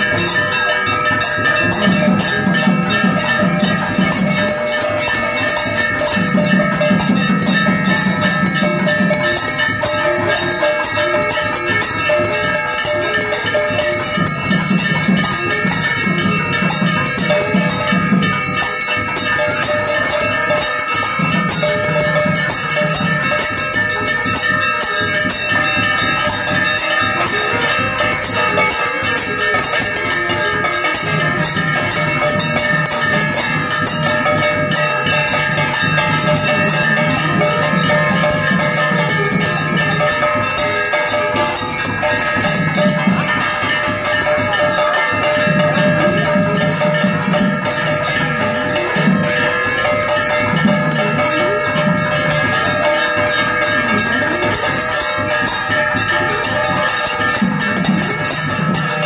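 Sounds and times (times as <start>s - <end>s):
temple bells ringing rapidly: 0.0s - 59.0s.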